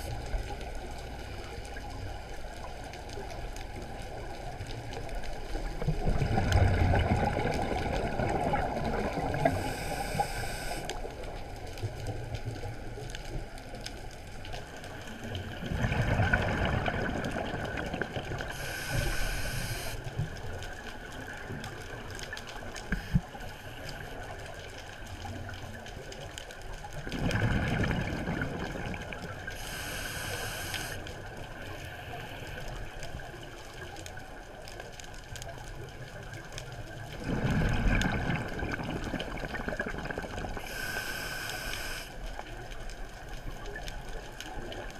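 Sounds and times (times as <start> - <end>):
exhaled bubbles gurgling: 0.0 - 13.6, 14.4 - 23.4, 26.8 - 31.8, 35.6 - 44.9
regulator air hiss: 9.4 - 10.9, 18.5 - 20.0, 29.6 - 31.0, 40.6 - 42.2.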